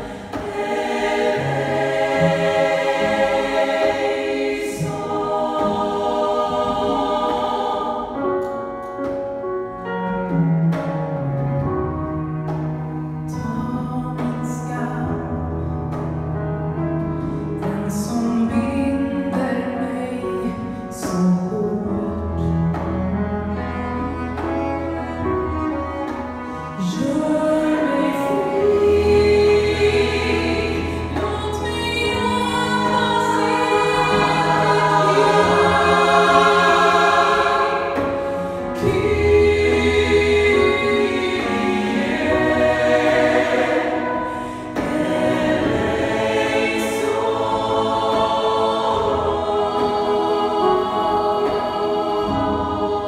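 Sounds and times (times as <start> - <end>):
choir voices: 0.0 - 10.8, 17.5 - 53.0
low cello notes: 0.0 - 53.0
piano: 0.0 - 53.0
woman singing: 13.3 - 15.4, 17.6 - 22.7, 26.8 - 36.2.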